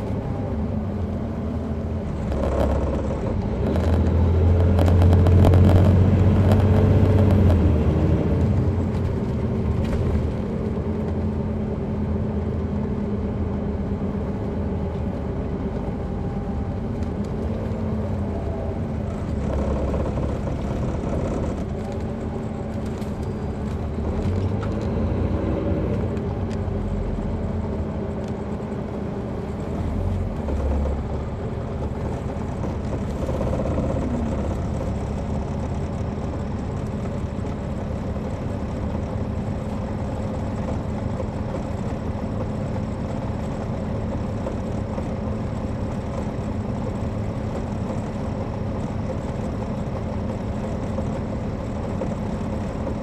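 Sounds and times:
bus diesel engine drone: 0.0s - 53.0s.

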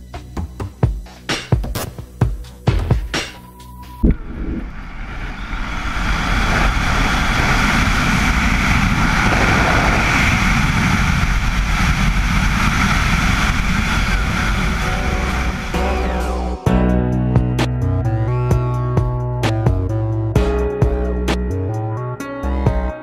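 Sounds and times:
wind buffeting camera microphone: 4.0s - 15.8s.

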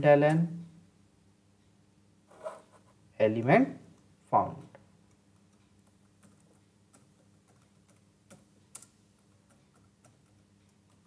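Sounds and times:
typing on computer keyboard: 5.4s - 11.0s.

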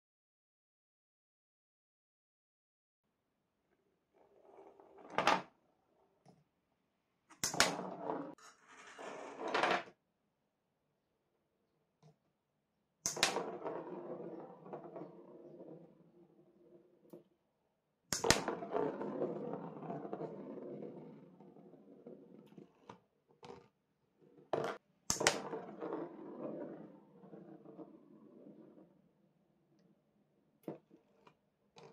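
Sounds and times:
ball clack: 7.3s - 8.4s, 13.1s - 15.2s, 18.2s - 20.9s, 24.6s - 28.7s
balls clicking and knocking: 7.3s - 8.5s, 13.1s - 17.3s, 18.1s - 29.1s, 30.6s - 31.9s.

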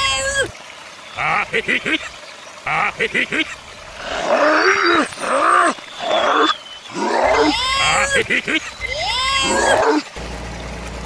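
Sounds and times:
harsh animal-like cries: 4.0s - 10.1s.

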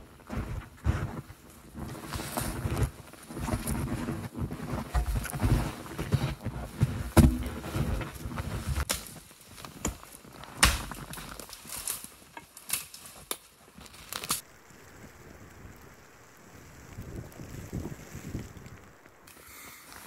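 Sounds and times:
footsteps crunching in snow: 0.0s - 14.4s
dry wood knocking and cracking: 4.7s - 6.2s, 7.1s - 8.2s, 8.8s - 14.4s
wind buffeting microphone: 15.0s - 19.0s.

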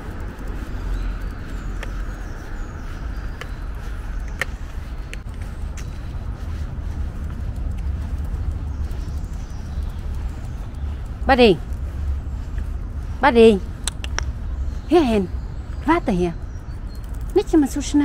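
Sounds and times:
sharp clicks: 0.0s - 2.2s, 3.3s - 6.0s, 7.2s - 12.0s, 13.7s - 14.6s, 16.4s - 18.0s
road traffic rumble: 0.0s - 18.0s.

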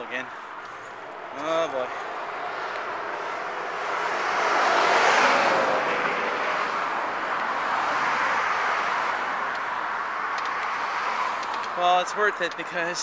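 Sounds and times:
car passing close by: 2.3s - 11.4s.

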